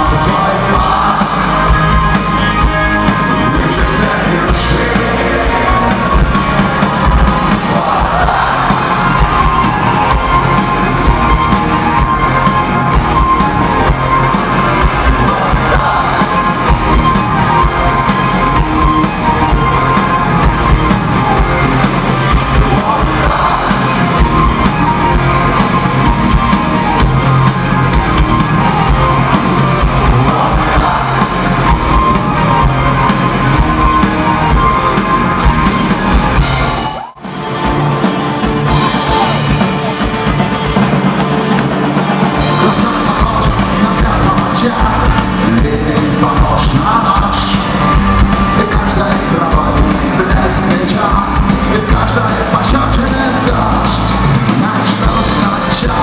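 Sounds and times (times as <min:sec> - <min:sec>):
person singing: 0:00.0 - 0:12.5, 0:13.2 - 0:26.4, 0:28.9 - 0:34.8, 0:42.4 - 0:56.0
crowd shouting along: 0:00.0 - 0:34.9, 0:35.5 - 0:37.2
drums: 0:00.0 - 0:56.0
electric guitar: 0:00.0 - 0:56.0.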